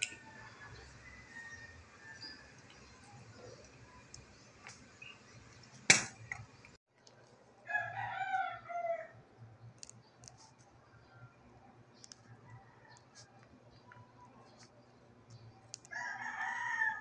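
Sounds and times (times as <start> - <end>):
rooster crowing: 0.2 - 2.6, 7.6 - 9.2, 15.9 - 17.0.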